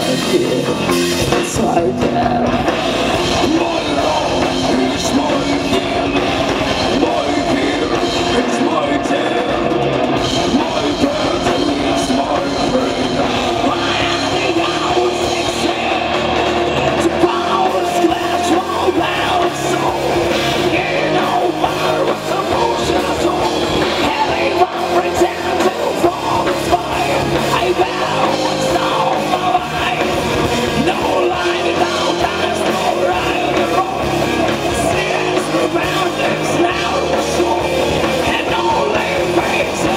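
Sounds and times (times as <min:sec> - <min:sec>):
drums: 0:00.0 - 0:39.9
electric guitars: 0:00.0 - 0:39.9.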